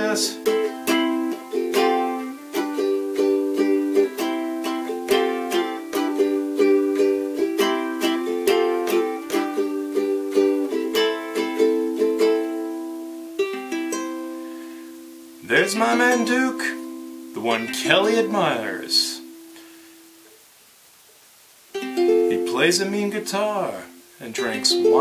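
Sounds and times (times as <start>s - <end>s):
ukulele strumming: 0.0s - 20.3s, 21.7s - 25.0s.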